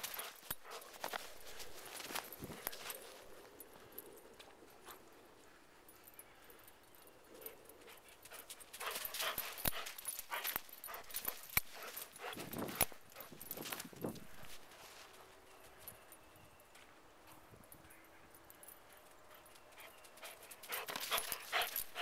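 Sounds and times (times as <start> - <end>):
footsteps crunching in snow: 0.0 - 3.5, 8.8 - 15.5.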